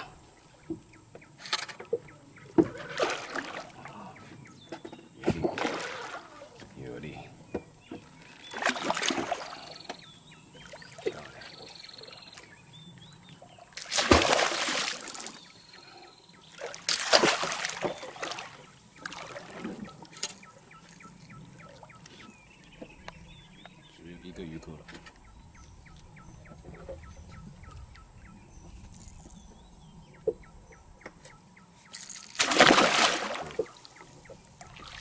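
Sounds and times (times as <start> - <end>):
fish thrashing and splashing: 8.4 - 9.6, 13.8 - 15.4, 16.6 - 20.5, 31.9 - 33.8.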